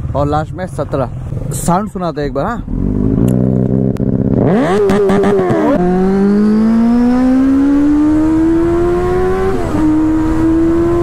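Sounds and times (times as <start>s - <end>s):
motorcycle engine revving and accelerating: 2.6s - 11.0s.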